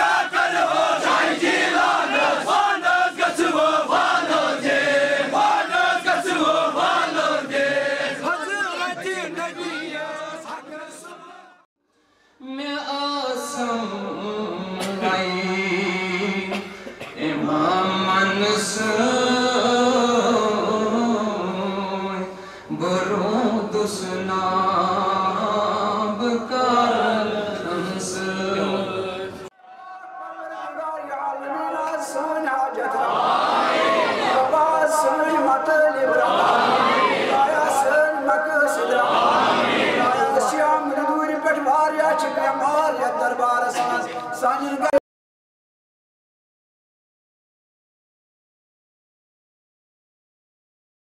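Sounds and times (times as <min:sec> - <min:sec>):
crowd chanting and calling out: 0:00.0 - 0:11.7, 0:24.6 - 0:45.0
man chanting into a microphone: 0:12.4 - 0:33.0, 0:34.3 - 0:36.3, 0:37.3 - 0:39.0, 0:40.0 - 0:45.0.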